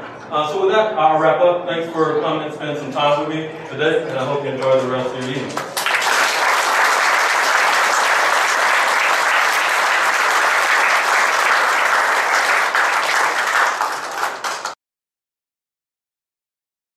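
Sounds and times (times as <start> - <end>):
audience applauding: 5.6 - 14.8.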